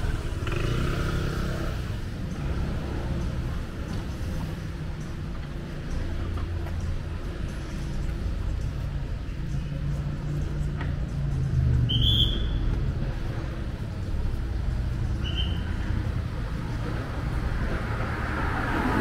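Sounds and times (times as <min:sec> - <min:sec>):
vehicle engines humming: 0:00.0 - 0:19.0.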